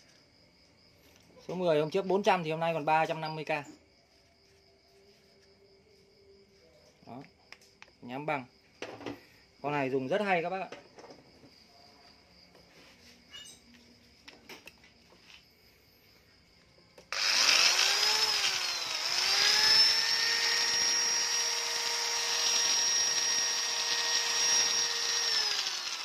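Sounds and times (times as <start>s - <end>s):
angle grinder motor whining: 17.1s - 26.0s.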